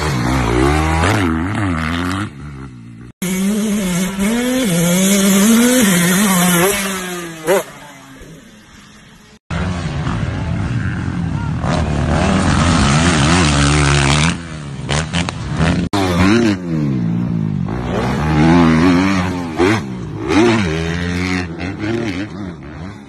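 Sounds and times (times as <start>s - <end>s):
dirt bike engine revving: 0.0s - 23.0s
second dirt bike revving: 0.0s - 23.0s.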